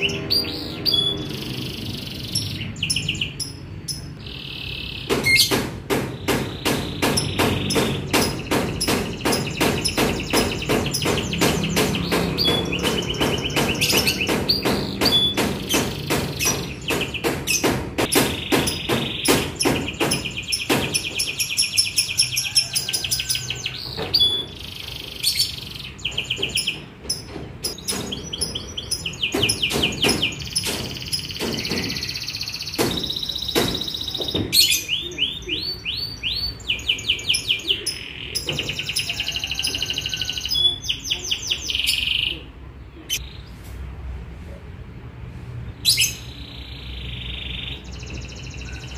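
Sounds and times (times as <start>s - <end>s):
canary singing trills: 0.0s - 43.5s
fast sharp knocks: 5.0s - 22.1s, 26.0s - 34.6s.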